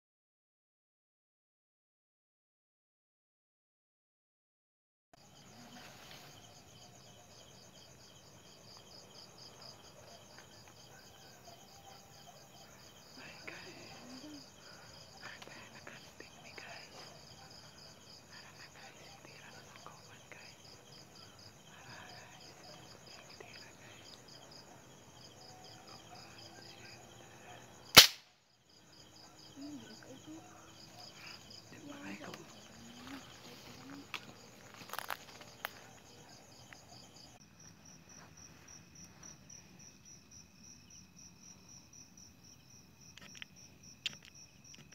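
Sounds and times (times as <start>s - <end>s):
crickets chirring: 5.2s - 44.9s
sharp crack: 27.9s - 28.4s.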